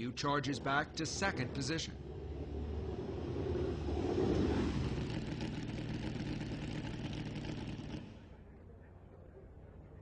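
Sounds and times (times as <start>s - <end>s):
race car engine rumbling: 0.0s - 10.0s.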